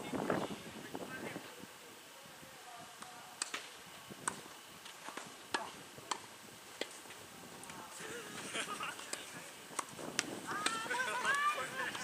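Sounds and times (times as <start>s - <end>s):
tennis ball bouncing on court: 9.0s - 12.0s
tennis ball struck by rackets: 9.0s - 12.0s.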